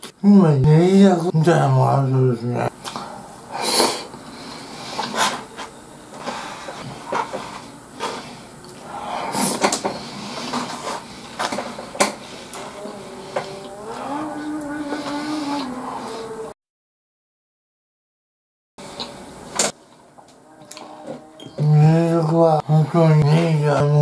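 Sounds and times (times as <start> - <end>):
man chewing: 2.8 - 16.4, 20.3 - 21.6.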